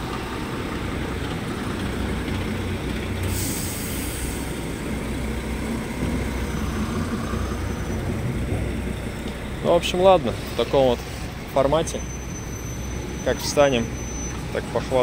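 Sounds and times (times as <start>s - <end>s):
diesel truck engine rumbling: 0.0s - 15.0s
air brake hiss: 3.2s - 4.6s.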